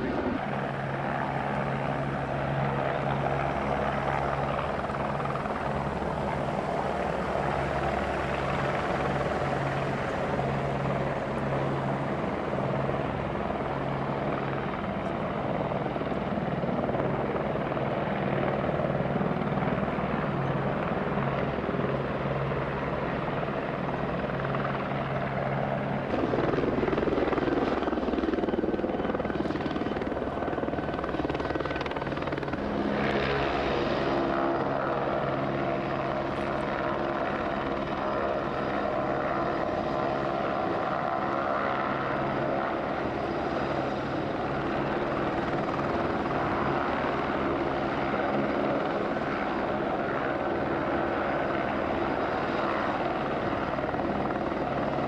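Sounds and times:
helicopter flying low: 0.0s - 55.0s.

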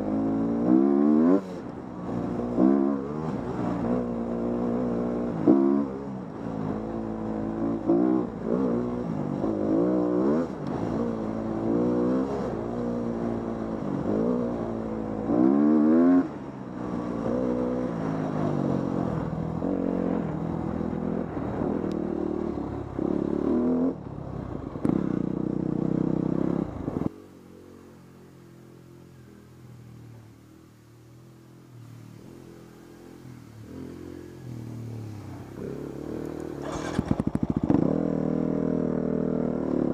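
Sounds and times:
dirt bike engine revving: 0.0s - 1.6s, 7.4s - 20.2s, 33.6s - 39.9s.

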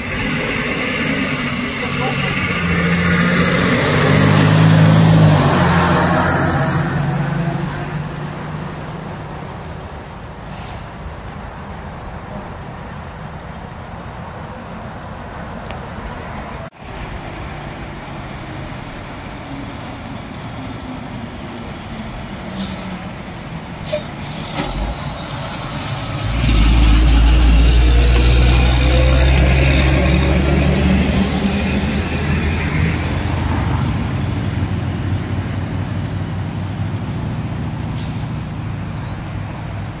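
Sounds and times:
high whine: 0.0s - 9.7s, 24.5s - 35.1s
truck diesel engine passing: 0.0s - 11.2s, 16.0s - 40.0s
distant traffic: 0.0s - 40.0s.

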